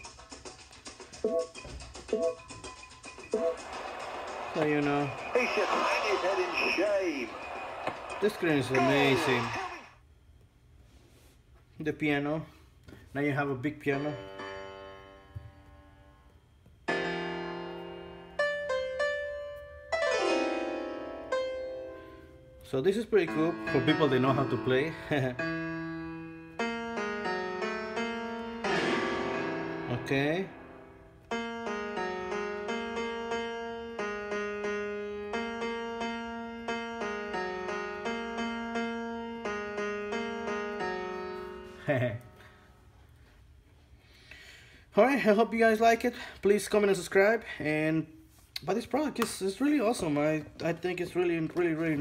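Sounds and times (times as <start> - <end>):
piano chords: 13.6 - 42.8.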